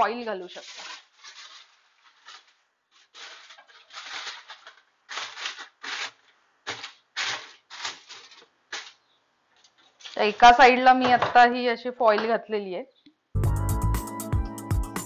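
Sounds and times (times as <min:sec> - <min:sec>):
aluminium foil crinkling: 0:00.0 - 0:10.6.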